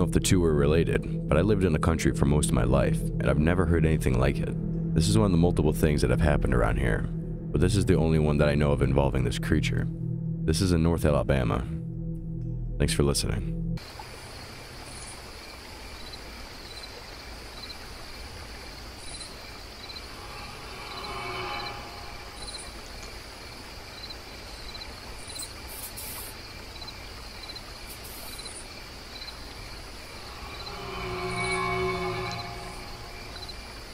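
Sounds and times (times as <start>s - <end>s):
crickets chirping: 13.8s - 33.9s
low hiss: 13.8s - 33.9s
faint drawn-out tone: 19.8s - 23.2s, 29.8s - 33.9s.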